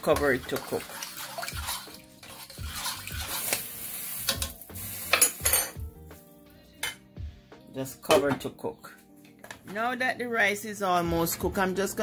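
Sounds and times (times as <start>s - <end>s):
spoon clinking against pot: 0.0s - 3.6s, 4.3s - 5.8s
water swishing in pot: 0.0s - 5.4s.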